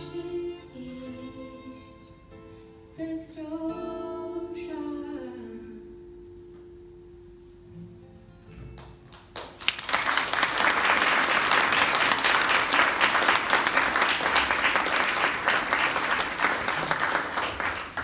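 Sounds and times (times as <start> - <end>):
audience applauding: 8.8 - 18.0.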